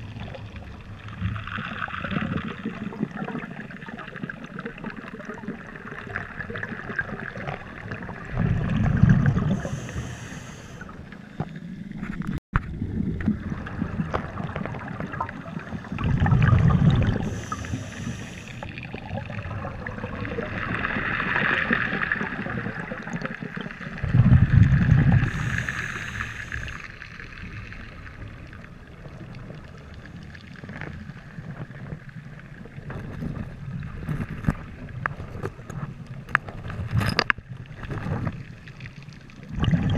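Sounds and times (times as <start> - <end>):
exhaled bubbles rushing: 0.0 - 11.1, 12.6 - 31.4, 37.7 - 39.9
crackling underwater background: 0.0 - 39.9
scuba regulator hiss: 9.6 - 10.8, 17.2 - 18.6, 25.2 - 26.9.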